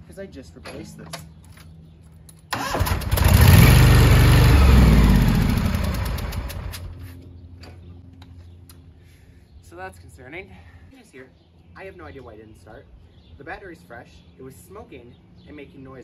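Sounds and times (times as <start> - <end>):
engine starter cranking: 2.5 - 6.9.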